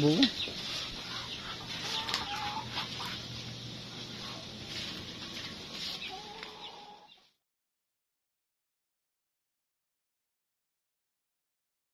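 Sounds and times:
chickens clucking: 0.0 - 7.4.

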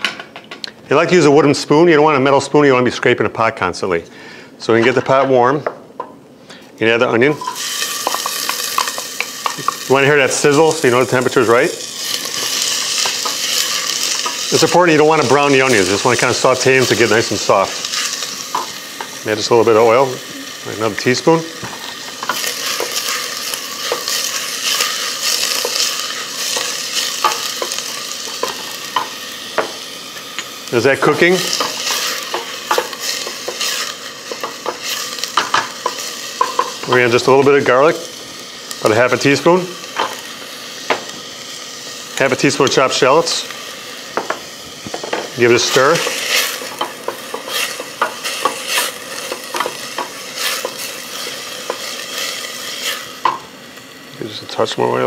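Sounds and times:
onion sizzling in oil: 7.0 - 55.0
wooden spoon stirring: 21.6 - 29.1.

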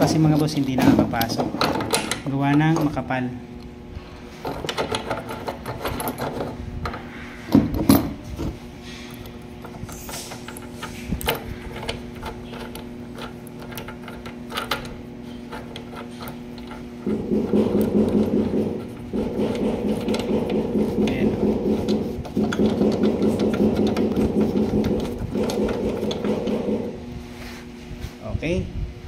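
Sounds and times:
steady low hum: 0.0 - 29.0
cap grating on threaded terminal: 8.8 - 27.0.

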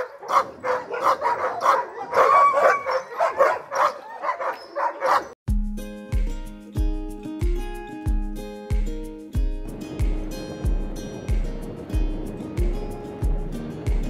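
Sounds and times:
dogs barking and yipping: 0.0 - 5.4
music with held notes and beat: 5.5 - 14.0.

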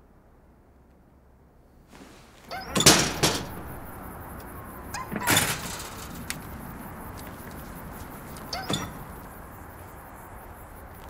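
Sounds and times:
outdoor hiss: 1.6 - 11.0
door clattering and banging: 2.5 - 4.0, 5.0 - 6.6, 8.5 - 9.2
door squeak: 2.5 - 4.0, 4.9 - 6.4, 8.4 - 9.3.

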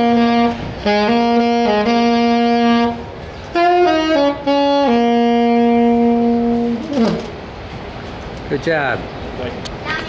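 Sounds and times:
alto saxophone melody: 0.0 - 7.6.

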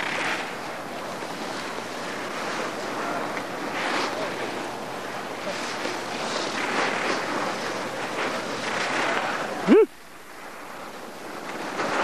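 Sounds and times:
skis scraping on icy snow: 0.0 - 9.7, 10.3 - 12.0
person yelping: 9.7 - 9.9.

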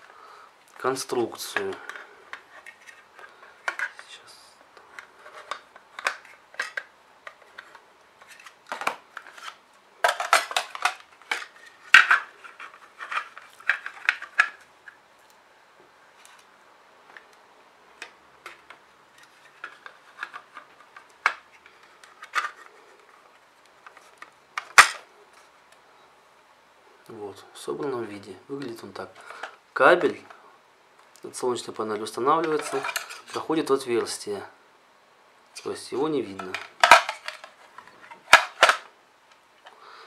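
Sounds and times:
plastic parts clicking and rattling: 1.4 - 4.1, 4.9 - 15.0, 18.0 - 25.1, 32.4 - 33.5, 36.3 - 38.9.

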